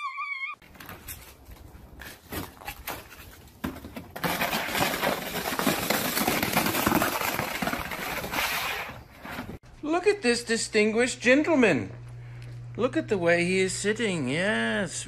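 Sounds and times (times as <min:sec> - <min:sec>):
plastic sled scraping over ice: 0:04.1 - 0:09.6.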